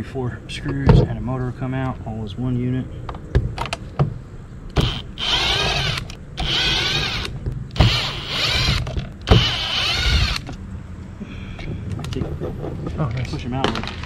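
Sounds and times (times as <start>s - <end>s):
cordless drill motor whine: 4.8s - 10.5s.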